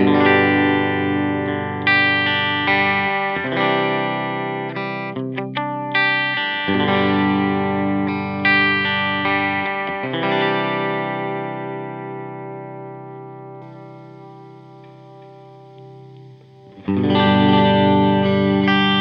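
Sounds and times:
electric guitar strummed chords: 0.0 - 19.0
muted guitar strums: 13.6 - 19.0.

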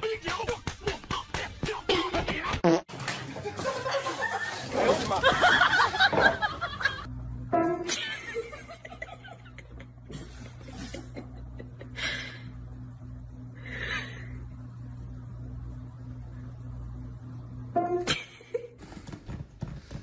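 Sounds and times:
steady low hum: 5.3 - 20.0
person laughing: 7.9 - 12.5, 18.1 - 18.8.

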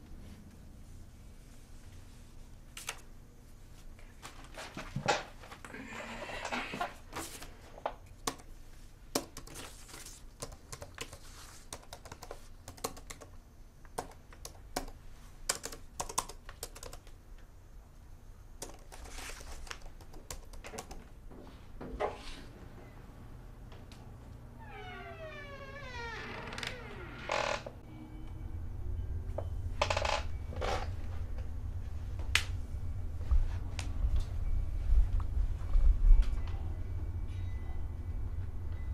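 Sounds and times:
laptop keyboard typing: 8.2 - 8.5, 9.1 - 17.2, 18.6 - 21.1.

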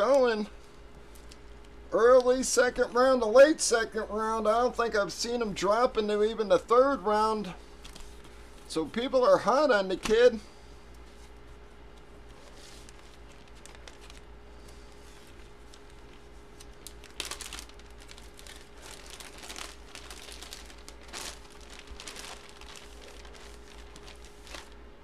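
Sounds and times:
plastic bag crinkling: 12.2 - 25.0.

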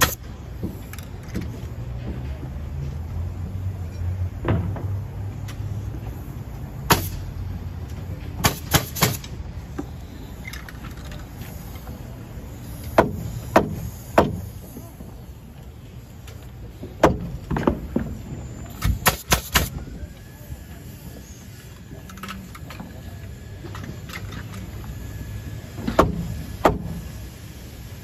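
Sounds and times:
nail gun firing: 6.9 - 7.2, 8.4 - 9.4, 18.8 - 19.8.

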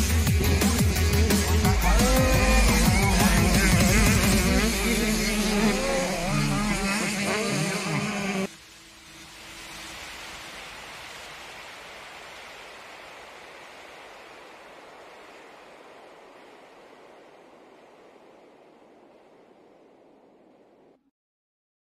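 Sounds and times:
steady rushing noise: 0.0 - 21.0.

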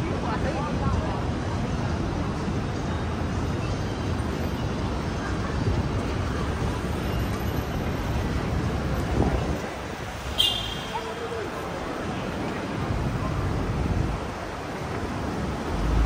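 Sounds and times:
traffic rumble: 0.0 - 16.0.

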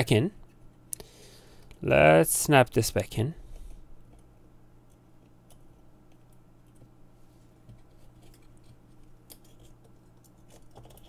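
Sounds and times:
steady low hum: 0.0 - 11.0
small plastic parts clicking: 9.2 - 11.0.

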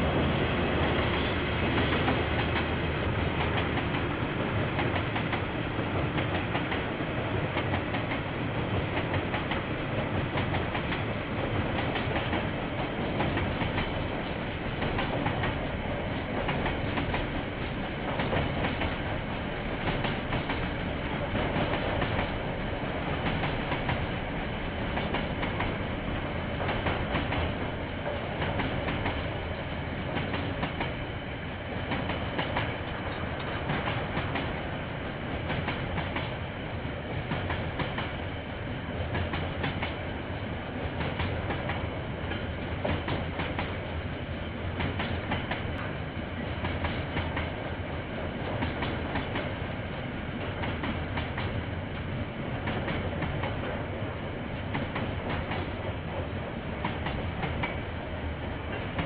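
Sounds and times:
train wheels rumbling on rails: 0.0 - 59.0
clicking over rail joints: 11.7 - 24.2, 31.9 - 34.6, 37.1 - 38.2, 39.1 - 40.0, 40.8 - 43.8, 44.8 - 47.7, 48.3 - 49.7, 50.4 - 53.9, 54.6 - 57.9.

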